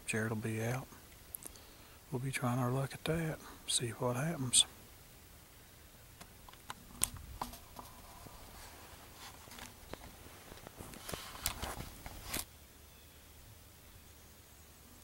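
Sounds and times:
light rustling: 6.2s - 12.5s.

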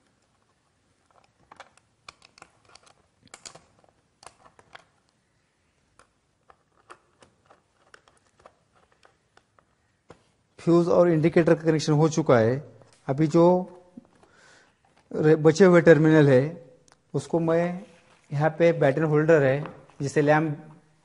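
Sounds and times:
faint clicks and taps: 5.9s - 10.3s.

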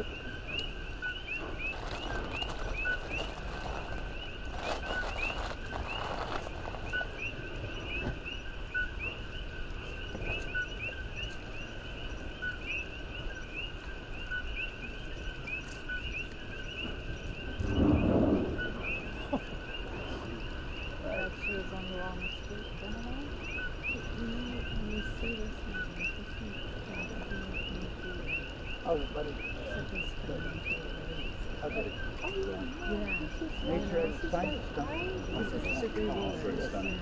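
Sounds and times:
steady high hiss: 0.0s - 21.8s
low rumble: 17.5s - 20.0s.

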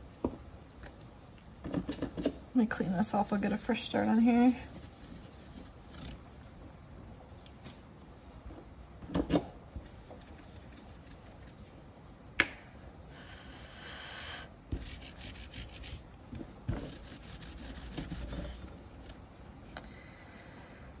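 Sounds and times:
rubbing strokes on metal plate: 16.7s - 18.7s.

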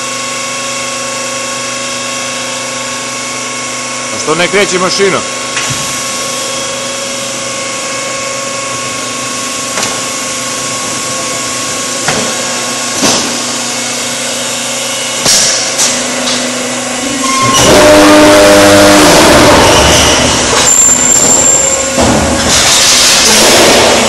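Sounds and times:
electric motors humming: 0.0s - 24.0s
loud machine noise: 0.0s - 24.0s
pallets knocking on conveyor: 12.0s - 13.8s, 19.0s - 24.0s.

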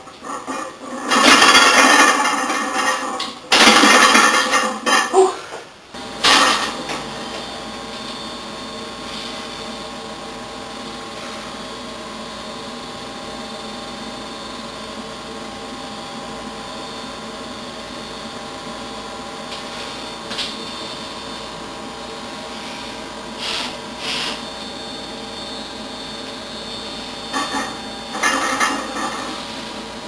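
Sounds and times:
machine hum: 0.0s - 30.0s
person straining: 5.1s - 5.7s.

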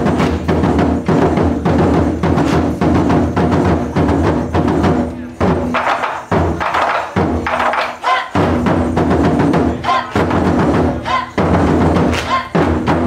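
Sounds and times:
taiko drum ensemble playing: 0.0s - 13.0s.

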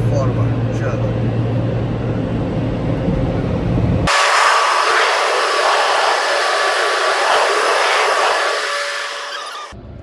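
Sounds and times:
low rumble with steady hum: 0.0s - 10.0s
air dryer blowers rushing: 4.1s - 9.8s.

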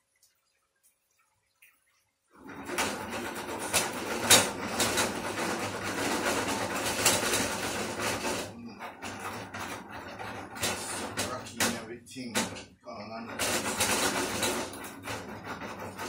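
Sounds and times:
pan simmering with crackle: 0.0s - 2.4s.

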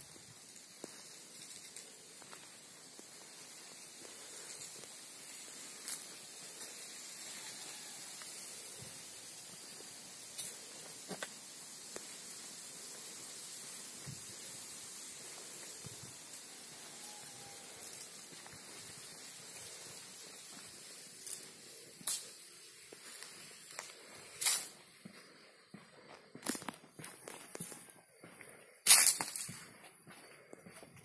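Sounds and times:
steady high hiss: 0.0s - 30.9s
footsteps scuffing on stone: 22.9s - 31.0s.

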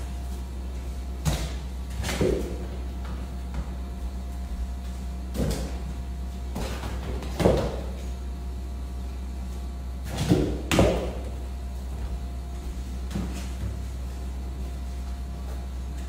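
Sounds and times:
steady low hum: 0.0s - 16.0s
soccer ball thuds: 1.1s - 4.2s, 4.8s - 8.0s, 10.1s - 11.4s.

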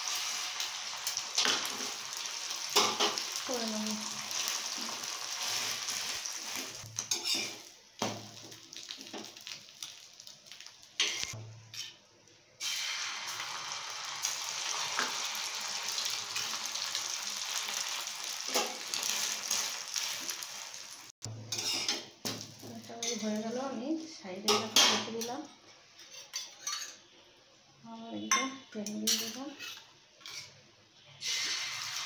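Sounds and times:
egg sizzling on a griddle: 0.0s - 11.4s, 12.6s - 22.6s, 31.2s - 32.0s.

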